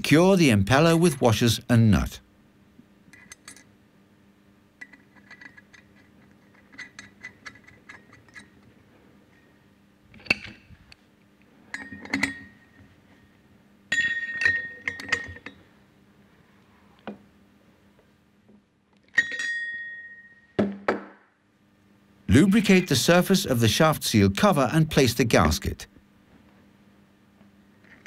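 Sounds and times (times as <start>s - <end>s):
socket wrench metallic clatter: 4.8s - 8.6s, 11.7s - 12.6s, 13.9s - 15.6s.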